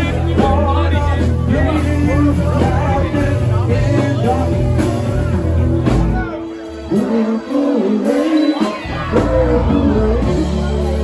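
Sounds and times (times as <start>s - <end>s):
rock band playing slow song: 0.0s - 11.0s.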